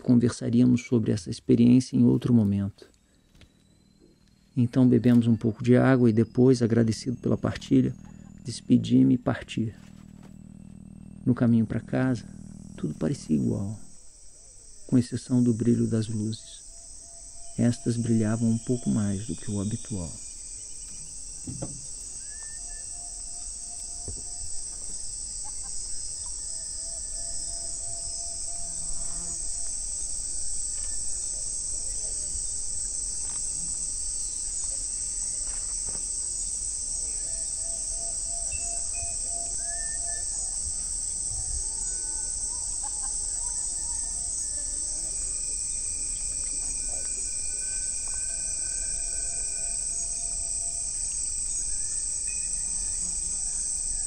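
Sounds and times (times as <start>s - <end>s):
high-pitched insect chorus: 0.0s - 54.0s
short whistle-like calls: 22.2s - 23.1s.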